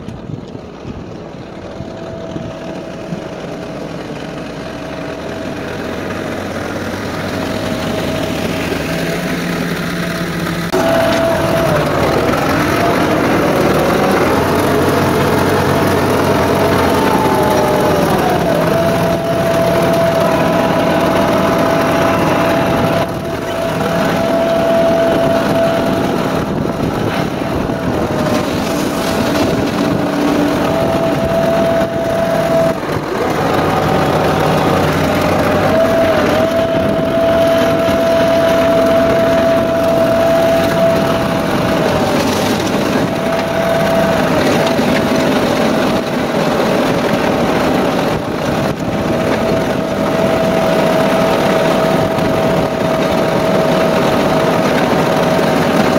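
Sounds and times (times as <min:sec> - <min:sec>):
diesel tractor engine whining: 0:00.0 - 0:55.9
blade dragging across gravel: 0:27.0 - 0:30.8.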